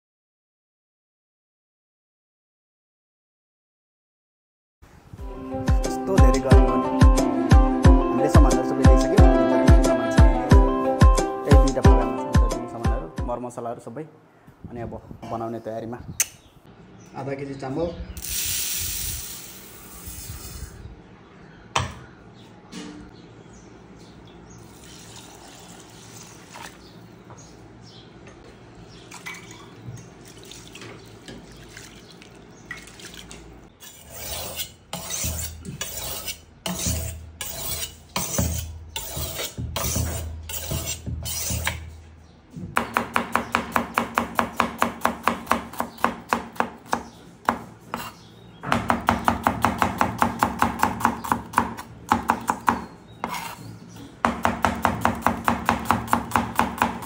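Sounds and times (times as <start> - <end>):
knife chopping on plastic board: 42.8 - 53.5, 54.2 - 57.0.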